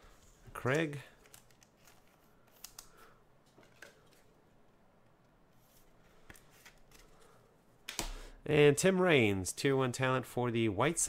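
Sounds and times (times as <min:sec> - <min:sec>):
cards in sleeves rustling: 0:00.1 - 0:04.4, 0:05.5 - 0:08.2.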